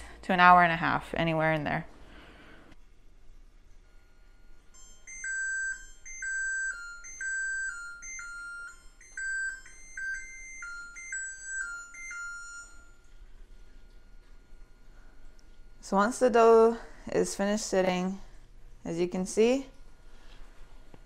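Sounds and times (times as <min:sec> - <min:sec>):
electronic timer chime: 0:03.8 - 0:16.9.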